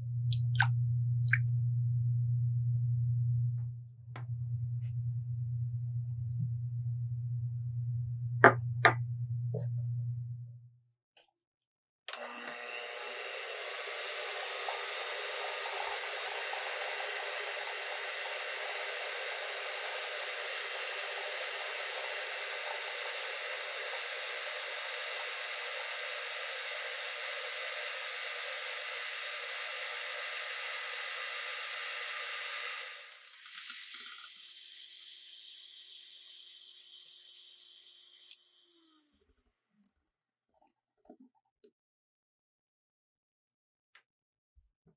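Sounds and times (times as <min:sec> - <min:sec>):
electric hand mixer whining: 0:12.1 - 0:39.1.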